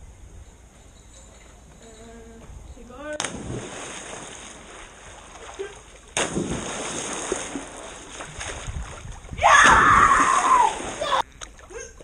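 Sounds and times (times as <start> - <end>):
pool water splashing: 3.2 - 11.8
person jumping into pool: 3.2 - 12.0.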